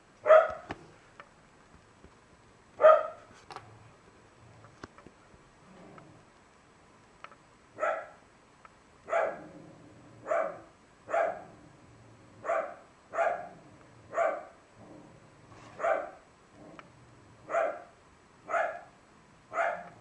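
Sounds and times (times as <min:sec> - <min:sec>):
dog barking: 0:00.2 - 0:00.7, 0:02.8 - 0:03.3, 0:07.8 - 0:08.2, 0:09.1 - 0:09.4, 0:10.2 - 0:11.5, 0:12.4 - 0:14.6, 0:15.7 - 0:16.2, 0:17.5 - 0:20.0.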